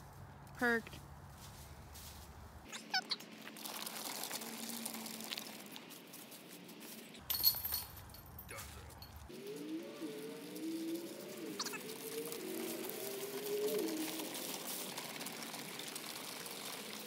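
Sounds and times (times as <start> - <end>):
footsteps crunching dry leaves: 0.0 - 7.2
dove-like cooing call: 9.3 - 17.0.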